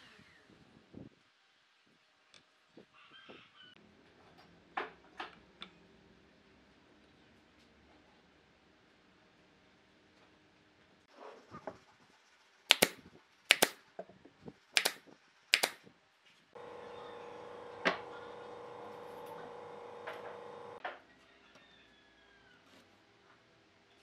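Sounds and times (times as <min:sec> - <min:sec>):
steady hum with held tone: 0:16.6 - 0:20.8.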